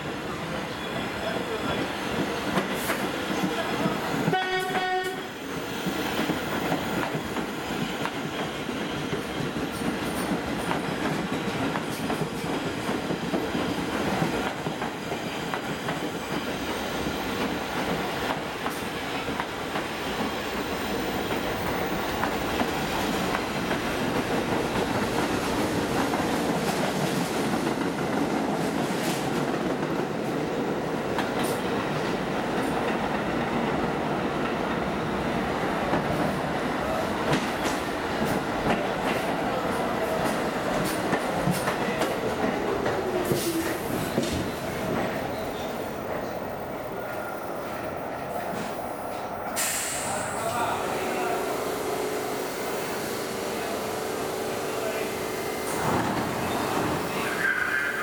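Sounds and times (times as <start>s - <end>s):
train wheels rumbling on rails: 0.0s - 58.0s
subway train horn blast: 4.2s - 5.4s, 49.8s - 58.0s
train knocking: 37.2s - 46.8s.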